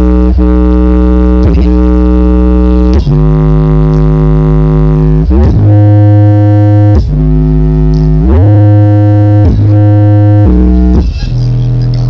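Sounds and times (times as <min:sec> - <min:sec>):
loud synthesizer music with bass: 0:00.0 - 0:12.0.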